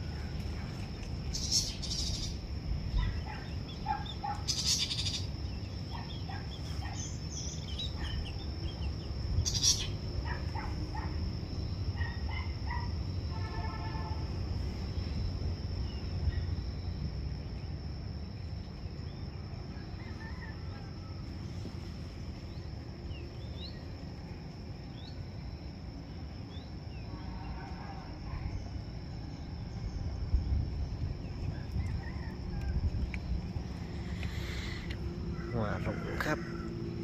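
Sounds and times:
low background rumble: 0:00.0 - 0:35.8
birds chirping: 0:00.1 - 0:11.1
high-pitched insect drone: 0:08.5 - 0:10.1.

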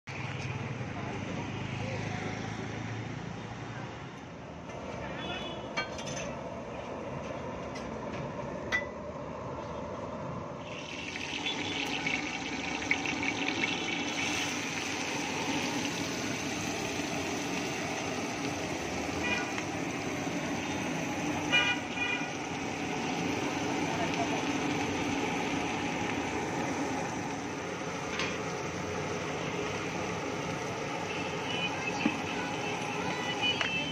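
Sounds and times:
food sizzling in hot oil: 0:10.6 - 0:33.9
horn toots: 0:21.4 - 0:22.5.

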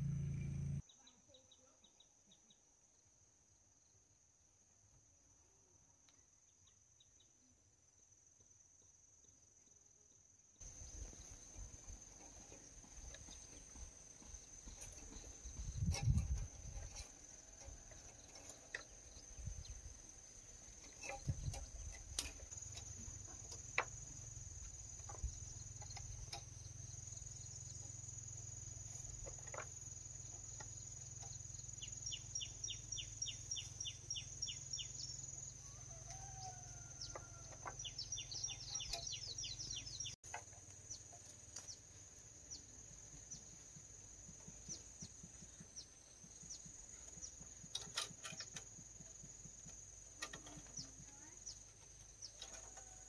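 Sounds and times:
birds chirping rapidly: 0:37.7 - 0:40.2.

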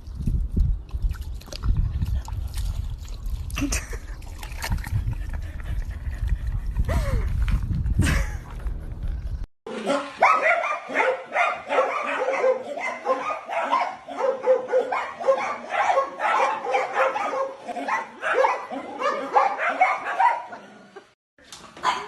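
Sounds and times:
small dogs barking excitedly: 0:09.8 - 0:20.7, 0:21.8 - 0:22.0.

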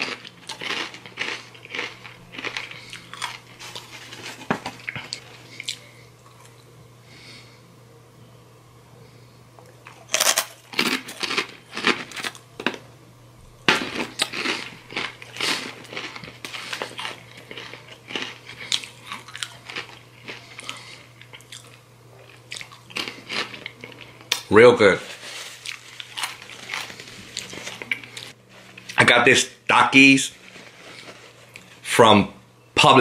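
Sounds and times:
person crunching chips: 0:00.0 - 0:06.6, 0:09.8 - 0:12.8, 0:13.7 - 0:29.0.

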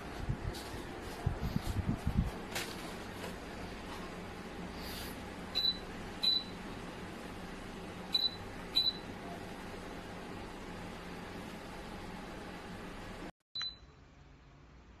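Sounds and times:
ceiling fan whirring: 0:00.0 - 0:15.0
short high beeps: 0:13.6 - 0:13.9.

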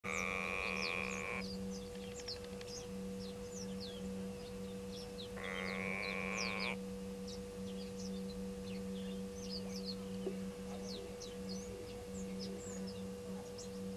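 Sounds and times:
bird giving nasal call: 0:00.0 - 0:01.5, 0:05.4 - 0:06.8.

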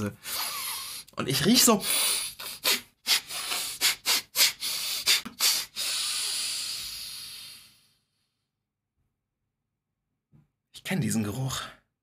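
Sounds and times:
man sniffing: 0:00.2 - 0:08.1.

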